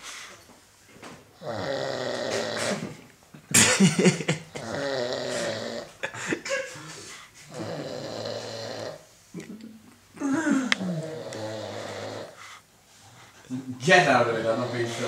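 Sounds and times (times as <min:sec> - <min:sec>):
man snoring: 0:01.4 - 0:03.0, 0:04.5 - 0:06.0, 0:07.5 - 0:09.1, 0:10.7 - 0:12.4, 0:14.3 - 0:15.0.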